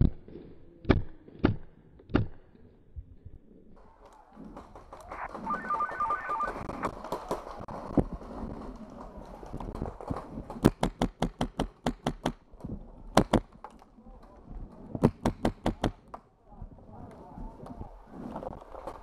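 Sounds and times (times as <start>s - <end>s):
paintball marker rapid firing: 9.8s - 12.4s, 15.0s - 16.0s.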